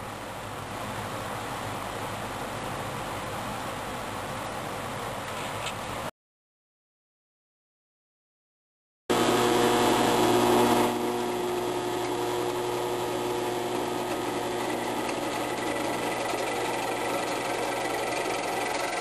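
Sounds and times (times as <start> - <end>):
electric drill running: 9.1 - 19.0.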